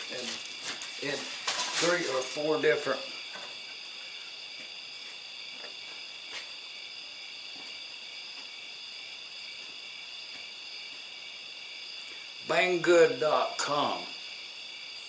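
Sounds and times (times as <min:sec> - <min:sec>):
high-pitched electrical whine: 0:00.0 - 0:15.0.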